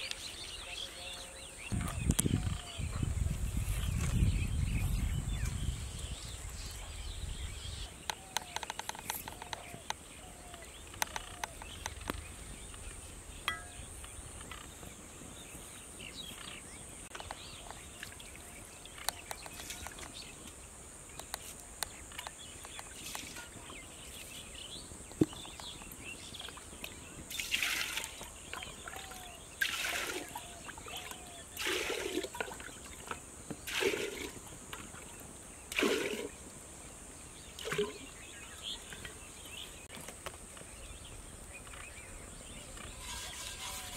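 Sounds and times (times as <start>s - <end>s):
water poured and splashing: 27.3s - 36.4s, 37.6s - 38.1s.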